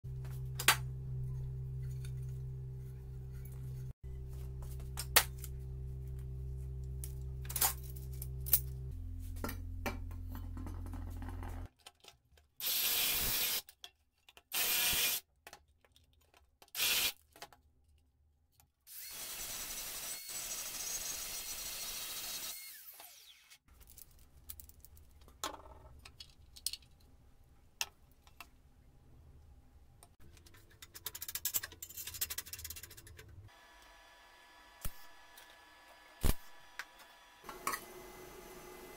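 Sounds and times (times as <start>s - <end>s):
low hum: 0.1s - 11.7s.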